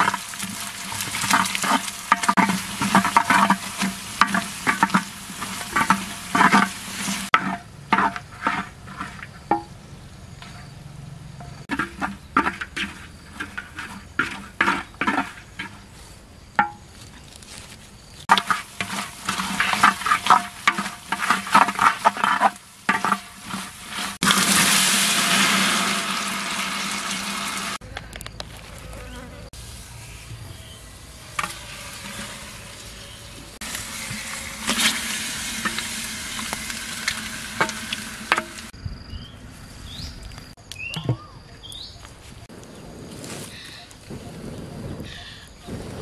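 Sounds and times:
loud steady hiss: 0.0s - 7.4s, 29.5s - 38.8s
metal ladle scraping clay pot: 0.0s - 9.7s, 11.4s - 16.0s, 18.3s - 27.8s, 31.3s - 38.7s
insect buzz: 0.0s - 46.0s.

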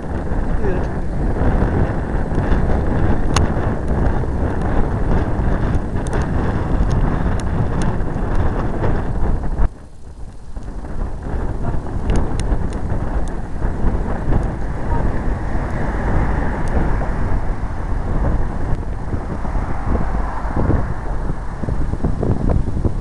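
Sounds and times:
wind rumbling on microphone: 0.0s - 23.0s
car traffic passing: 12.0s - 23.0s.

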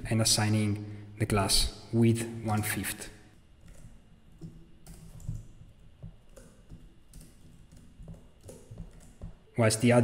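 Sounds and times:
keyboard keys clicking: 3.6s - 9.5s.

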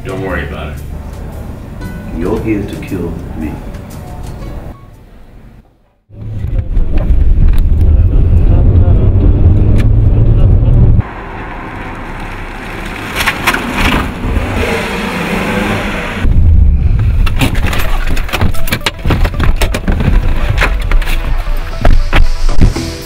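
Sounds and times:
street noise: 0.0s - 23.0s
car cabin rumble: 16.2s - 22.8s.

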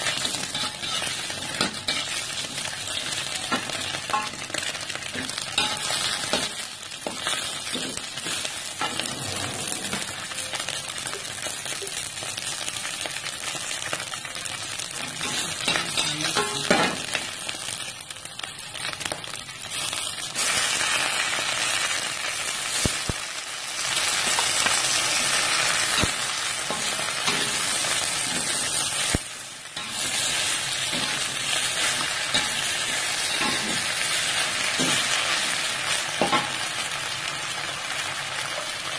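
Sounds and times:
metal spatula scraping wok: 0.0s - 4.4s, 5.1s - 10.8s
hot oil sizzling: 0.0s - 38.9s.

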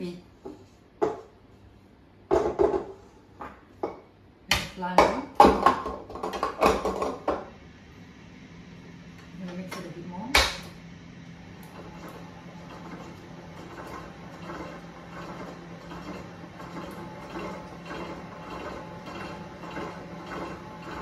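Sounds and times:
stand mixer motor hum: 11.4s - 21.0s
beater turning through dough: 11.6s - 21.0s.

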